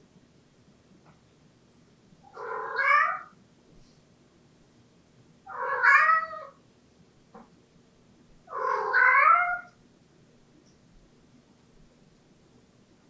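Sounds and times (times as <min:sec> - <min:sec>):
cat meowing: 0:02.3 - 0:03.4, 0:05.5 - 0:06.6, 0:08.5 - 0:09.8.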